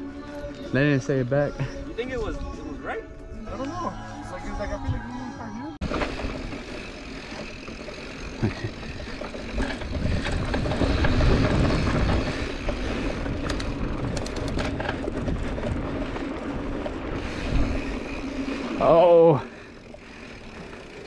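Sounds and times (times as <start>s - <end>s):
wind: 0.0s - 21.0s
bike rattling over stones: 5.8s - 21.0s
bike tyres rumbling on trail: 5.8s - 21.0s.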